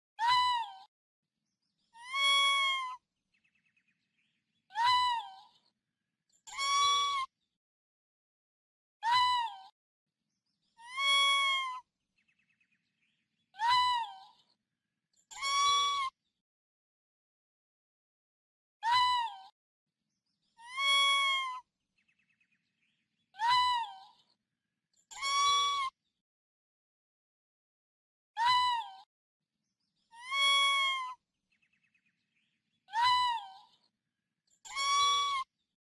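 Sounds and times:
raccoon crying: 0:02.0 - 0:03.0, 0:06.5 - 0:07.3, 0:10.8 - 0:11.8, 0:15.3 - 0:16.1, 0:20.6 - 0:21.6, 0:25.1 - 0:25.9, 0:30.2 - 0:31.2, 0:32.9 - 0:33.7, 0:34.7 - 0:35.5.

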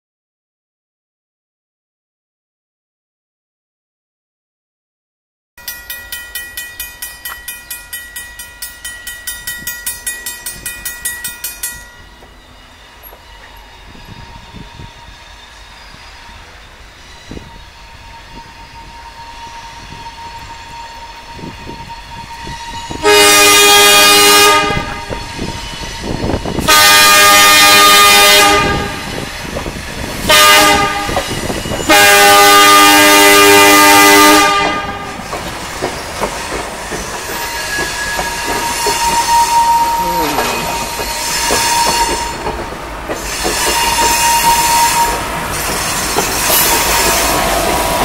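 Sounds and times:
railroad crossing bell ringing: 0:05.6 - 0:27.4, 0:29.9 - 0:32.8, 0:35.8 - 0:48.0
train rumble: 0:05.6 - 0:48.0
train air horn blasts: 0:13.2 - 0:16.6, 0:17.2 - 0:29.2, 0:30.2 - 0:35.2, 0:37.5 - 0:42.5, 0:43.2 - 0:45.3.

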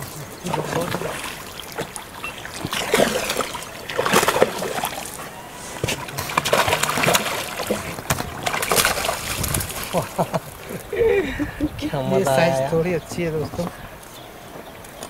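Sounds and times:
fish splashing in water: 0:00.0 - 0:10.9.

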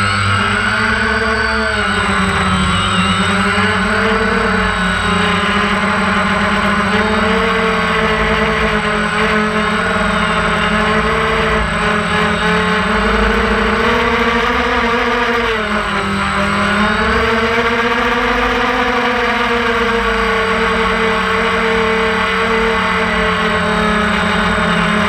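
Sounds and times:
drone propellers humming: 0:00.0 - 0:25.0.

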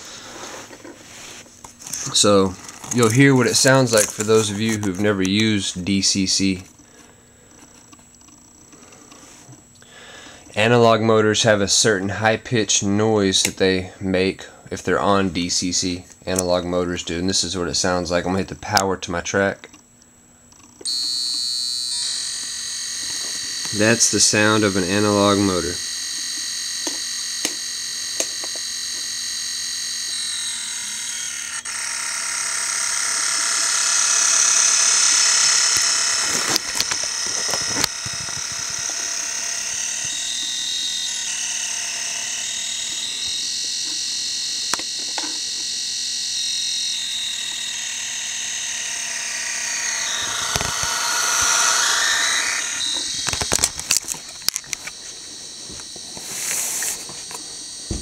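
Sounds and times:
high-pitched model train motor whine: 0:00.0 - 0:07.8, 0:20.8 - 0:58.0.

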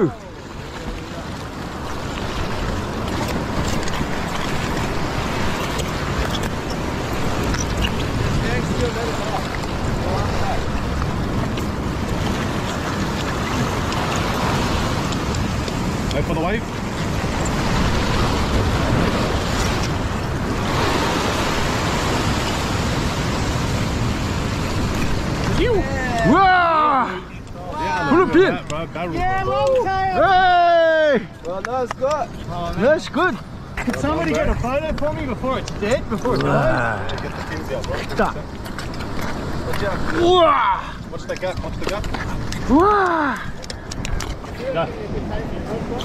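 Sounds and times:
ocean swell washing over rock: 0:00.0 - 0:28.6
wind rumble on microphone: 0:00.0 - 0:30.6, 0:31.7 - 0:46.0.

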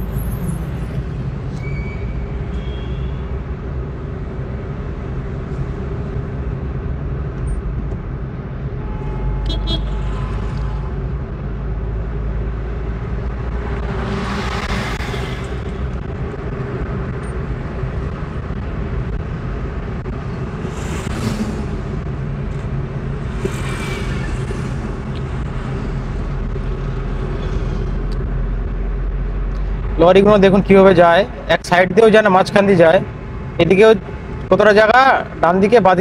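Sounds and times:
car engine hum and road noise: 0:00.0 - 0:36.0
rushing noise: 0:12.8 - 0:31.6.

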